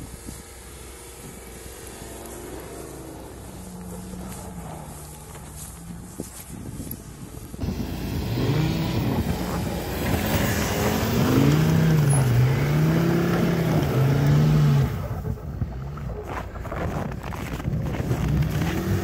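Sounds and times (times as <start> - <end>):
car engine revving: 7.6 - 19.0.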